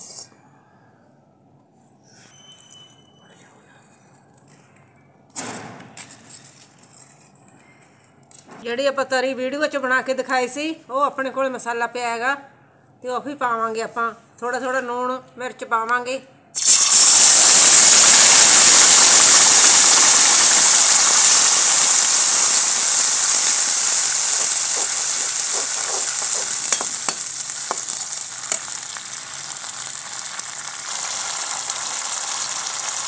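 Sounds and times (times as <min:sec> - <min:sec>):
paste sizzling in hot oil: 0:16.6 - 0:33.0.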